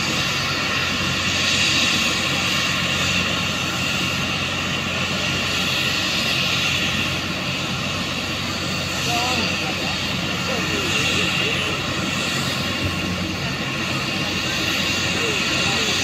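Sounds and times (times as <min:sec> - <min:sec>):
helicopter engine and rotor: 0:00.0 - 0:16.0.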